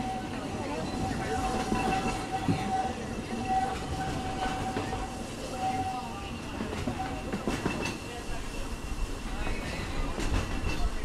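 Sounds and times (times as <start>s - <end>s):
train rolling rumble: 0.0s - 11.0s.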